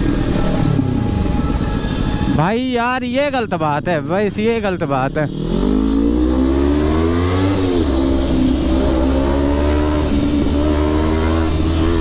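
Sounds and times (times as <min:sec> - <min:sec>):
motorcycle engine running: 0:04.4 - 0:12.0
wind rumble on microphone: 0:09.9 - 0:12.0.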